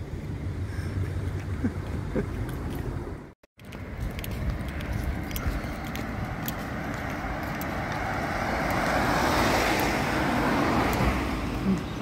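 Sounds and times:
traffic rumble: 0.0 - 12.0
wind: 0.0 - 12.0
car passing by: 5.7 - 12.0.

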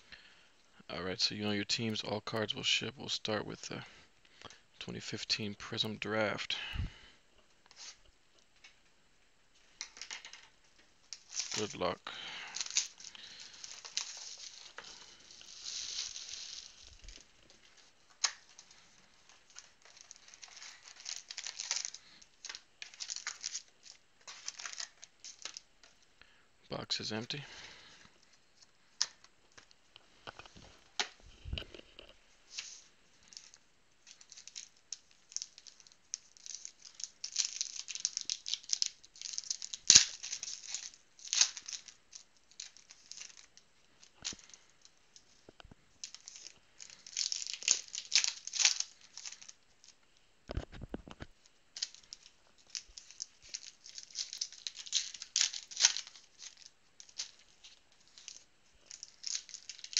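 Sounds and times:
foil wrappers tearing and crinkling: 11.1 - 26.0, 32.5 - 45.3, 46.0 - 50.0, 51.7 - 59.9.

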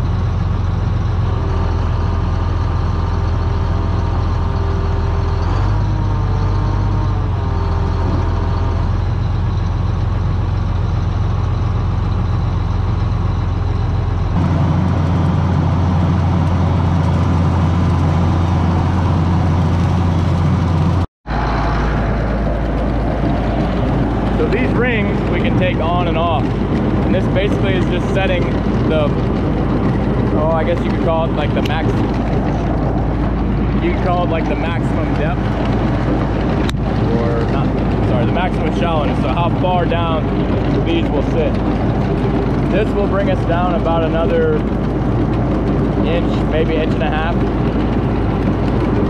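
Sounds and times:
rotary mower: 0.0 - 49.0
tractor diesel engine running: 0.0 - 49.0.

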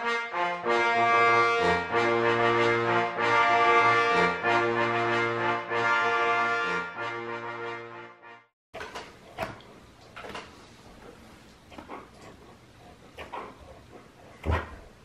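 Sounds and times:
long held chords: 0.0 - 8.4.

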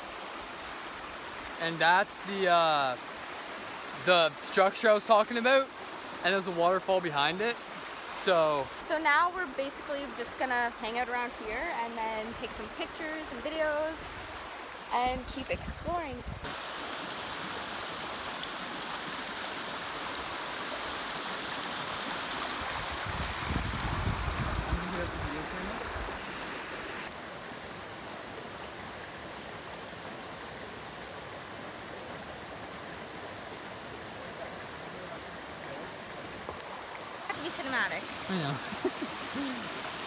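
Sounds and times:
water rushing over rocks: 0.0 - 11.5, 12.5 - 40.0.

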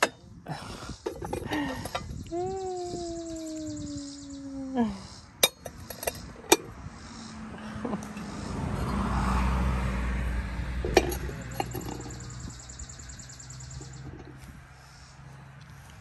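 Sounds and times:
vehicle passing: 6.2 - 16.0
dish clinking: 10.8 - 12.2.

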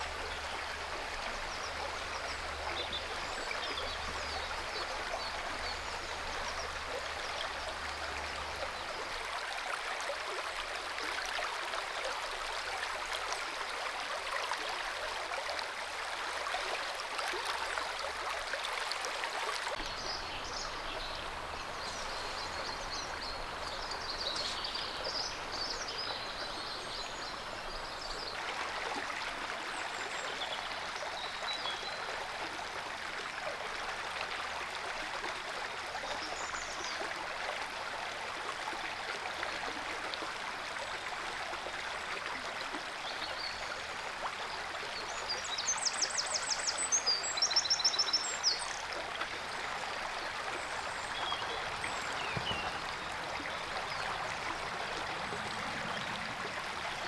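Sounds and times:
river water rushing: 46.4 - 57.0
small birds chirping: 50.8 - 54.1.

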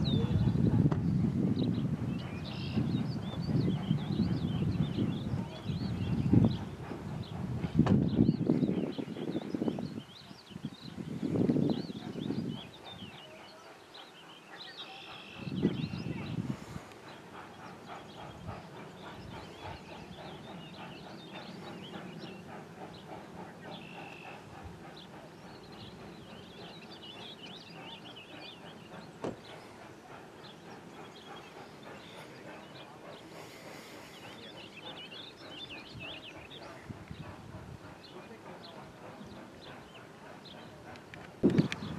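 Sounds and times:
birds singing: 0.0 - 41.9
distant steam locomotive chuffing: 0.0 - 41.9.

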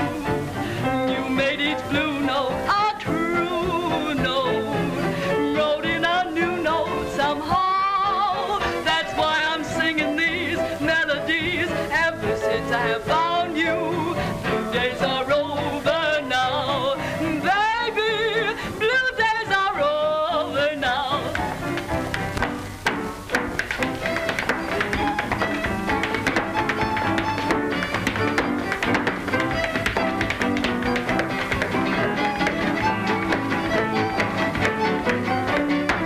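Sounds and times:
woman singing with vibrato: 0.0 - 21.6
instrumental accompaniment: 0.0 - 36.0.

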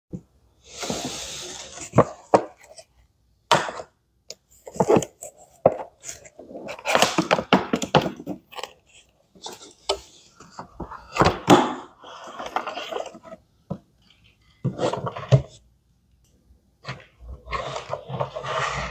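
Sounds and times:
cardboard packaging scraping and rustling: 12.0 - 13.4, 16.8 - 18.9.

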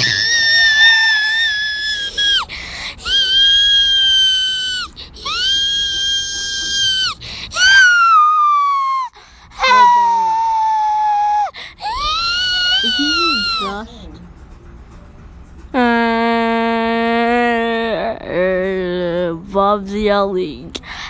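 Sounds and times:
high shrill voice screaming: 3.0 - 13.8.

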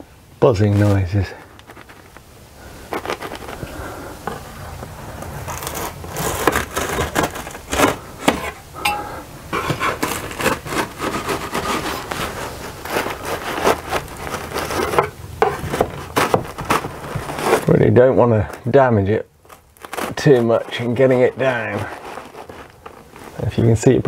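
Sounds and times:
knife scraping wasp nest: 2.8 - 8.6, 9.5 - 24.0.

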